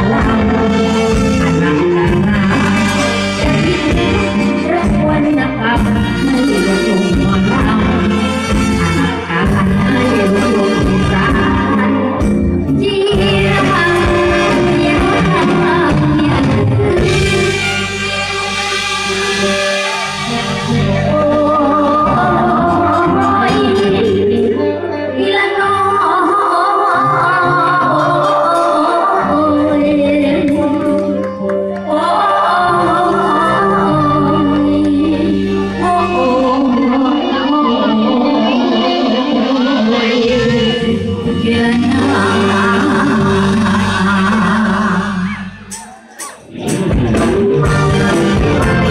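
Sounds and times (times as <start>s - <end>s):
woman singing into a microphone: 0.0s - 18.1s, 20.7s - 45.7s
band music through loudspeakers: 0.0s - 48.9s.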